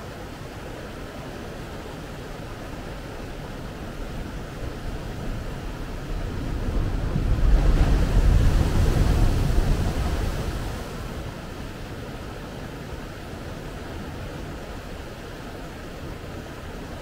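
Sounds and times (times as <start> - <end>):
wave crashing on rocks: 5.1 - 11.4.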